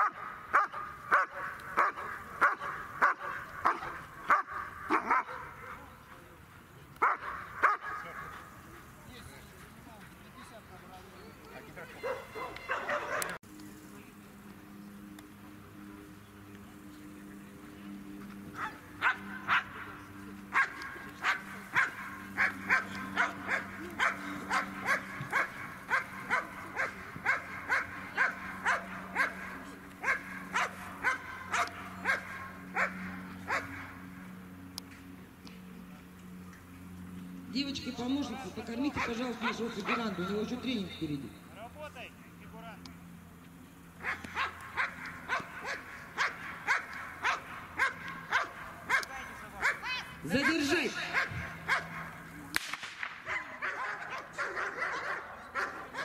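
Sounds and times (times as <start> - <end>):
dog barking: 0.0 - 5.8, 7.0 - 8.0, 12.0 - 13.4, 18.6 - 19.7, 20.5 - 29.4, 30.0 - 33.8, 44.0 - 52.1, 53.3 - 56.0.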